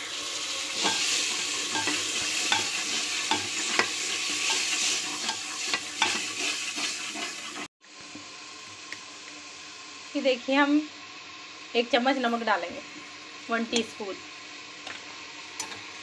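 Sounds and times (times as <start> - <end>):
food sizzling in hot oil: 0.0 - 16.0
spatula scraping and knocking pot: 0.8 - 7.7.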